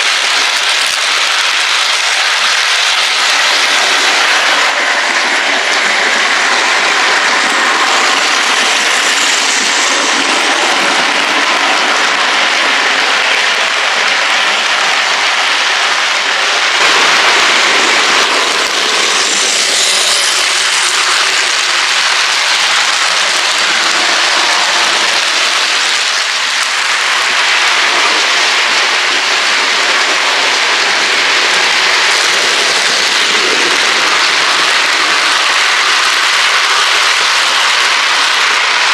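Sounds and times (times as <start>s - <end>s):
model trains rattling on track: 0.0s - 38.9s.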